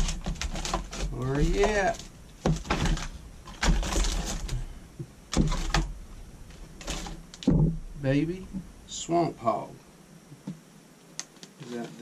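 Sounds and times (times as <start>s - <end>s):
packaging rustling and crinkling: 0.0s - 4.7s, 5.3s - 7.5s.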